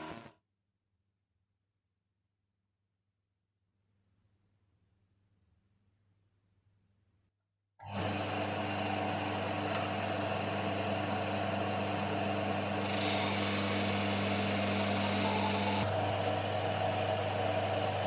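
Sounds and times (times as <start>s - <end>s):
sander motor humming: 7.8s - 18.0s.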